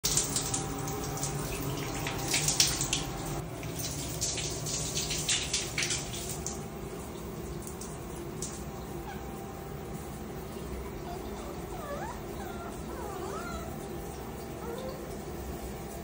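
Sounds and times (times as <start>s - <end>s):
shower water splattering on tiles: 0.0s - 11.2s.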